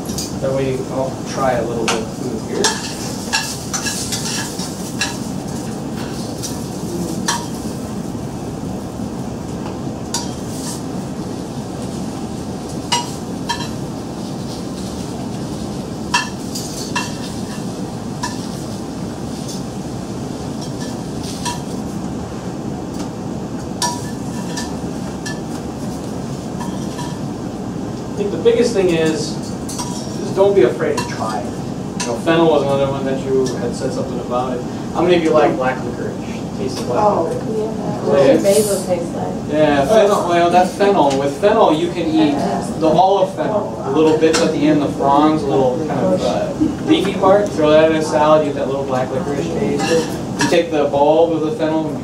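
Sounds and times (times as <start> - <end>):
vegetables sizzling in pan: 2.0 - 8.9, 10.0 - 22.0.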